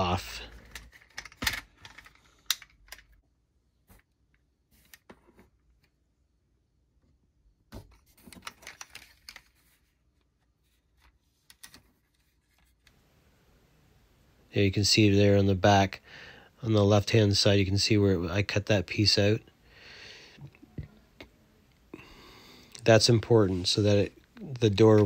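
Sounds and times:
plastic parts clicking: 0.6 - 3.2, 8.2 - 9.6.

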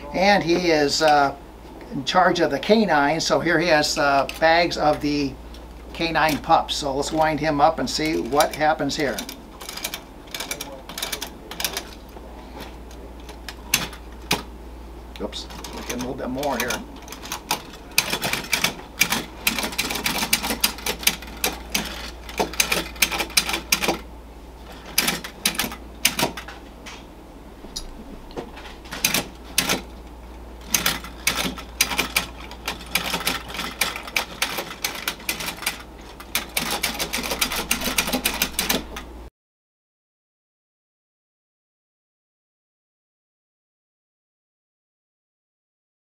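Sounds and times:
toy helmet rattling: 15.6 - 24.0, 24.7 - 26.5, 28.9 - 29.9, 30.6 - 39.0.

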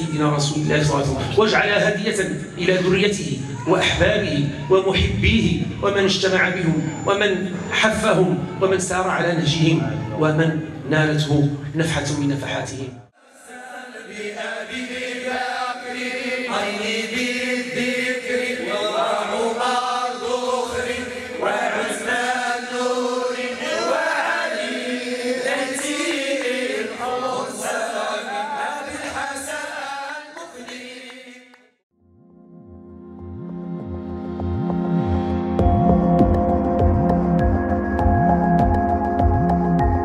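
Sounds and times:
men chanting a devotional song: 13.2 - 31.6.

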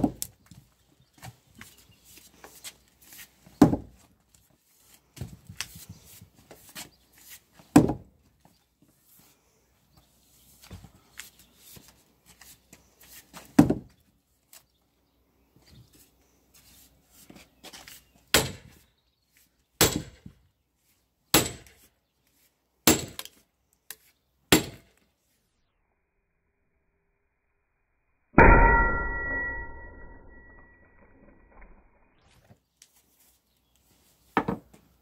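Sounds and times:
sledgehammer striking maul: 18.3 - 18.7, 19.8 - 20.2, 21.4 - 21.7, 22.9 - 23.2, 24.5 - 24.9, 28.4 - 30.7.

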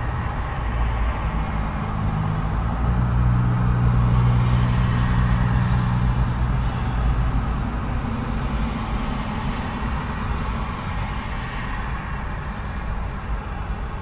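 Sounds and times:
low engine hum: 0.0 - 14.0
road traffic passing: 0.0 - 14.0.

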